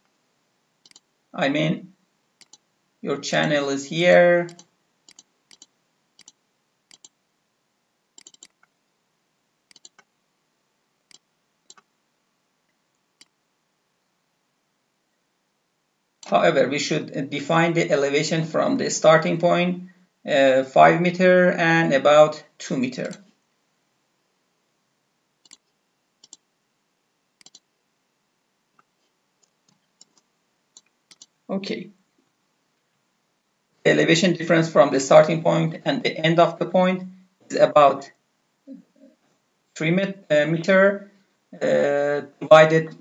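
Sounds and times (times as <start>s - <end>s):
computer mouse button clicking: 27.4s - 27.6s.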